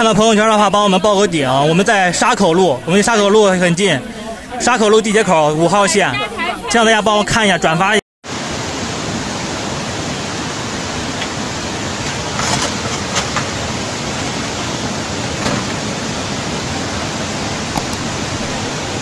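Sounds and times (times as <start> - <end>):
floodwater torrent rushing: 8.3 - 19.0.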